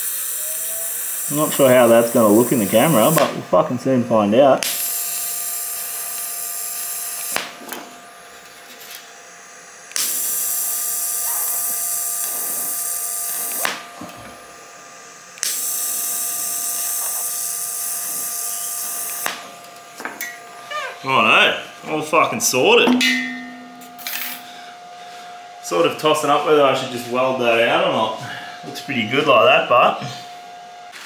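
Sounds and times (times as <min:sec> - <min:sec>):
welding arc hissing: 0:00.0 - 0:22.7.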